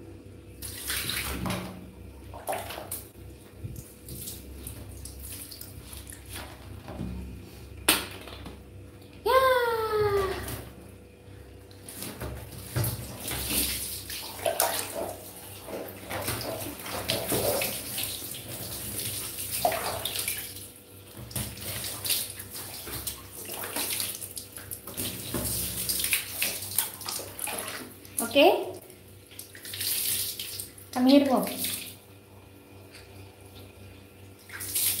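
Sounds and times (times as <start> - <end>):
water pouring and splashing: 11.8 - 28.4, 34.4 - 35.0.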